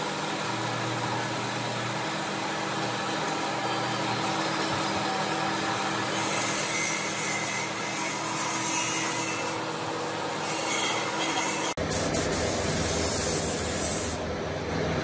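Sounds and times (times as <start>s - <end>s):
spray gun hissing: 11.8s - 14.2s.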